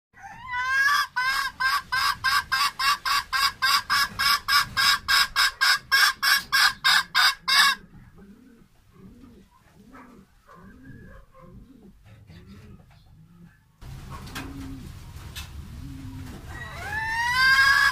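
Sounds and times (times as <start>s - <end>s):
hen cackling loud clucks: 0.2s - 17.9s.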